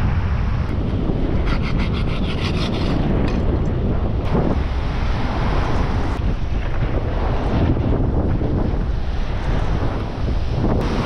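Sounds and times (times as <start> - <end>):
surf washing: 0.0 - 11.0
wind buffeting microphone: 0.0 - 11.0
serrated knife sawing bait: 1.4 - 3.1.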